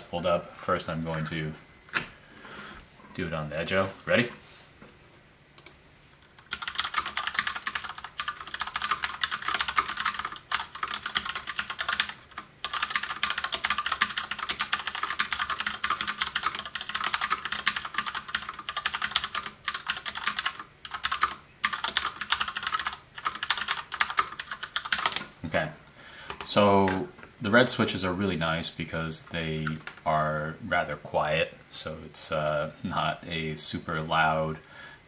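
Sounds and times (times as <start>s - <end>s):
fast mechanical keyboard typing: 6.4s - 25.3s.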